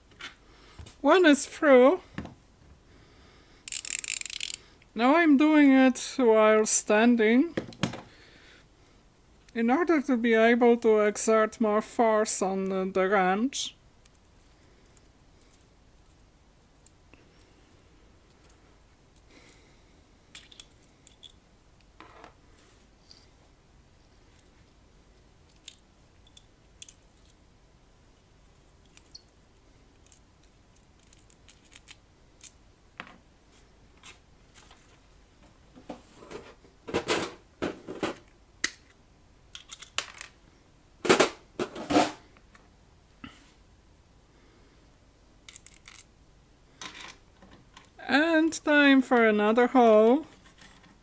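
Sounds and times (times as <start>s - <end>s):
small metal clicks and scrapes: 3.7s - 4.6s, 45.5s - 46.1s
metallic clinks and knocks: 20.3s - 21.4s, 28.5s - 29.4s, 30.0s - 32.6s.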